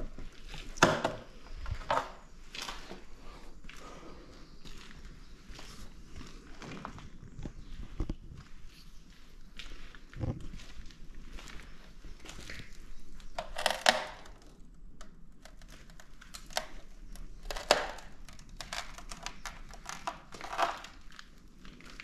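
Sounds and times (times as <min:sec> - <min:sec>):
footsteps on rough ground: 0:01.6 - 0:13.2.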